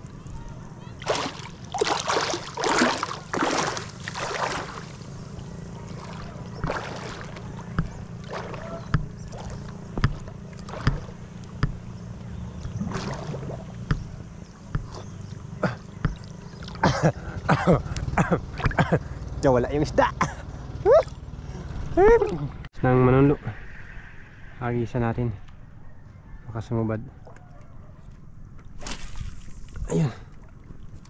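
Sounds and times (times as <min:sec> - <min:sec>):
water splashing and churning: 0:00.0 - 0:19.1, 0:28.6 - 0:31.0
low rumble of water: 0:00.0 - 0:26.4, 0:27.1 - 0:31.0.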